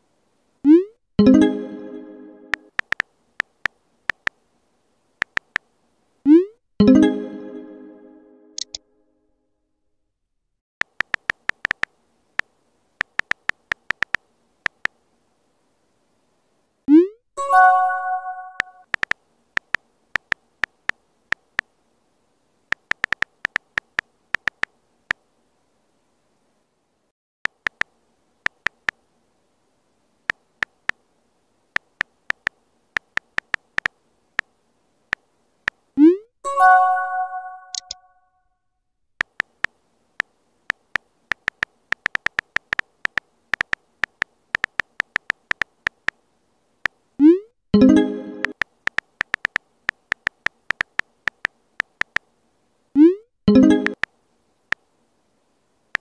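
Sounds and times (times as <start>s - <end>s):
keyboard key-press clicks: 2.5s - 4.3s, 5.2s - 5.6s, 10.8s - 11.9s, 13.0s - 14.9s, 18.5s - 21.4s, 22.7s - 24.7s, 39.2s - 39.7s, 40.7s - 46.2s, 48.4s - 52.2s.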